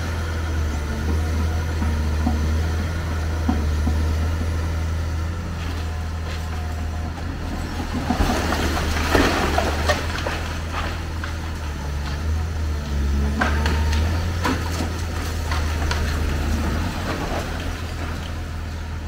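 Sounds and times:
excavator diesel engine running: 0.0 - 19.0
concrete crunching: 0.7 - 19.0
rubble clattering down: 6.4 - 11.4.

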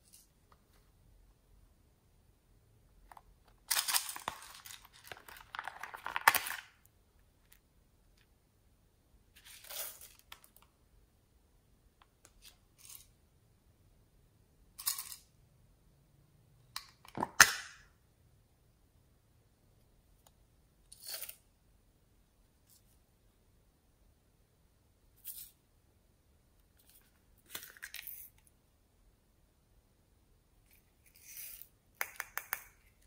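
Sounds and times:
plastic toys rustling and clicking: 3.1 - 6.8
plastic toys clattering: 3.6 - 6.7.

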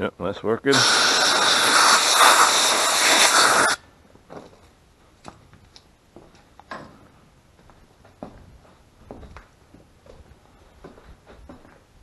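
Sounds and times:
air blow gun hissing: 0.7 - 3.8.

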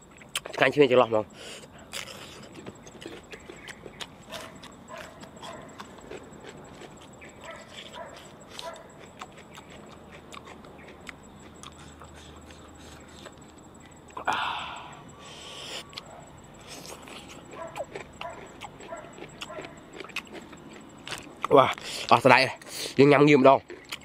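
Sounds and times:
mouth smacking and chewing: 1.5 - 24.0
mouth sucking hiss: 15.2 - 16.0.

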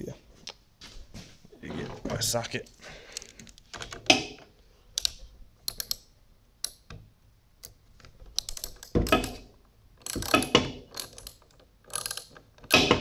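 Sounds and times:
ratchet set onto bolt: 5.0 - 6.0, 8.3 - 13.0
hand tools clicking and clinking: 8.4 - 13.0.

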